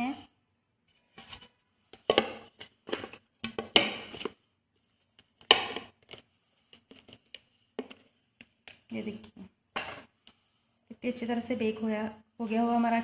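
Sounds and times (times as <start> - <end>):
plate and plastic bowl knocking: 2.0 - 4.3.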